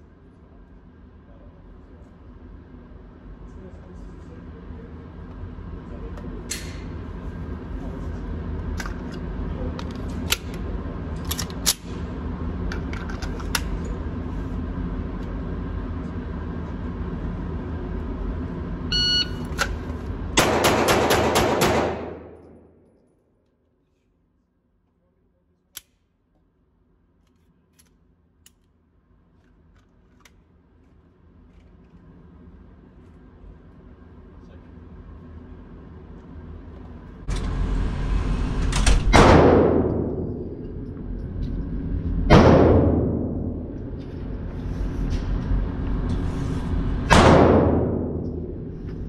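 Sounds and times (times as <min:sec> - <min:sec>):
steady hum: 0:00.0 - 0:23.4, 0:30.2 - 0:49.0
shot timer beep: 0:18.9 - 0:19.4
pistol firing rapid shots: 0:20.4 - 0:22.4.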